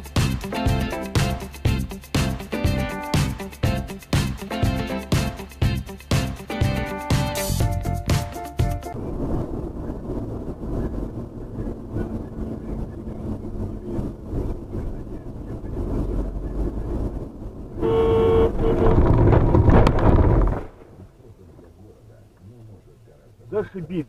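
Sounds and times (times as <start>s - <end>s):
car engine and road rumble: 8.9s - 24.0s
car horn honking: 17.8s - 19.1s.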